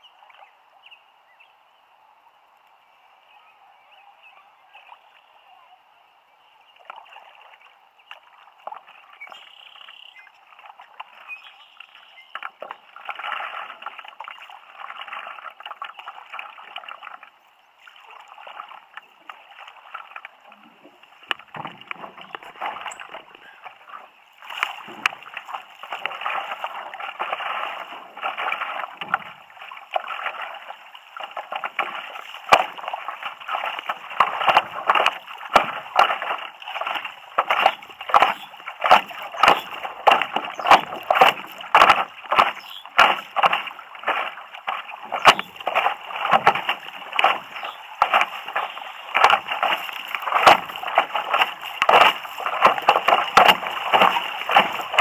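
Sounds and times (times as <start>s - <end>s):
water splashing against paddleboard: 6.7s - 55.0s.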